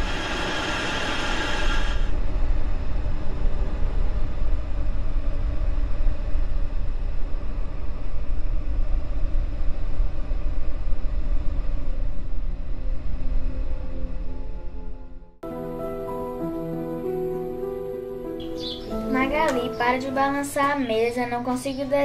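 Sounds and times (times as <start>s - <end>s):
low rumbling drone: 0.0s - 22.0s.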